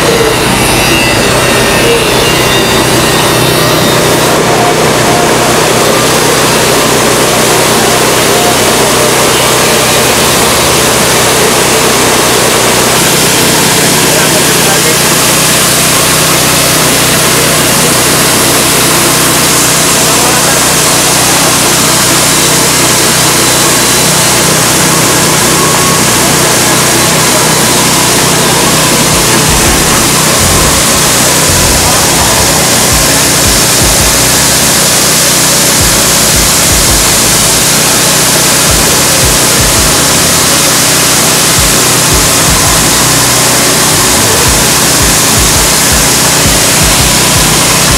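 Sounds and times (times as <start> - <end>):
coffee husking machine running: 0.0 - 47.9
low hum: 18.6 - 47.9.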